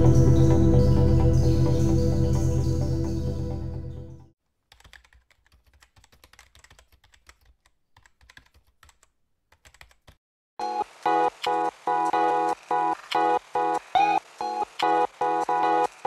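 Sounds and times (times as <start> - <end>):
background music: 0.0 - 4.3
keyboard typing clicks: 4.7 - 10.2.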